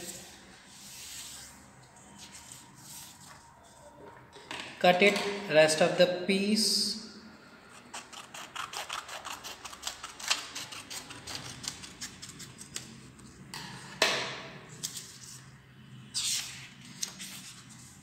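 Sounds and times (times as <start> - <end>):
scissors snipping paper: 7.9 - 12.9.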